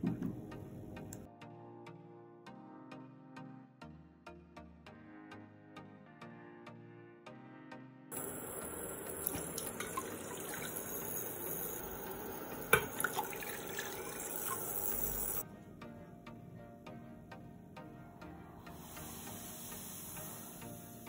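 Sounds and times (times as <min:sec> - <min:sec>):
water pouring into a saucepan: 0:08.1 - 0:15.4.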